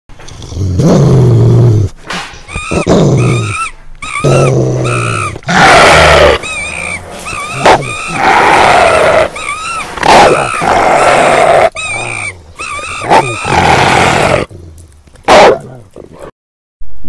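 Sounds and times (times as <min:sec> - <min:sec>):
animal-like growls and roars: 0:04.2 - 0:14.8.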